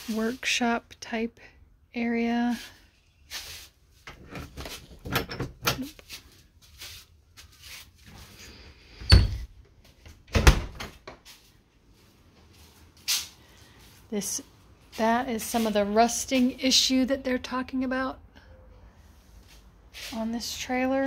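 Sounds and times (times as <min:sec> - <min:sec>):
wooden door clicking and rattling: 0:04.2 - 0:05.9, 0:10.1 - 0:11.2
dull heavy door thumps: 0:10.3 - 0:11.0.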